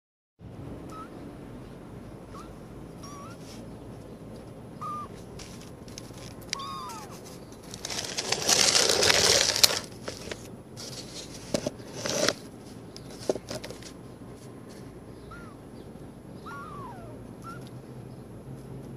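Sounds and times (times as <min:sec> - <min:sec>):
kittens mewing: 0:02.3 - 0:03.7, 0:04.8 - 0:05.2, 0:06.0 - 0:09.8, 0:15.2 - 0:15.7, 0:16.4 - 0:17.8
loud rustling scrape: 0:07.0 - 0:14.9.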